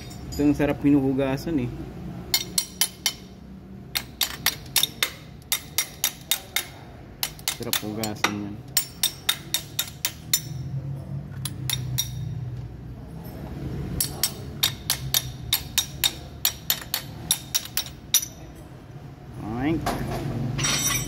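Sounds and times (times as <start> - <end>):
ratchet wrench clicking: 3.9 - 10.6, 14.0 - 18.4.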